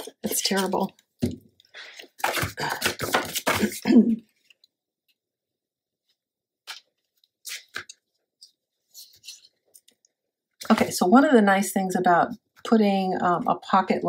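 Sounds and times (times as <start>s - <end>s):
person talking: 0.0s - 0.9s.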